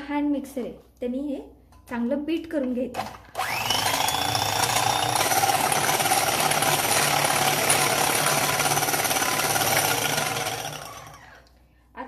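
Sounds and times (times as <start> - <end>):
electric hand mixer whisking eggs: 3.0 - 11.5.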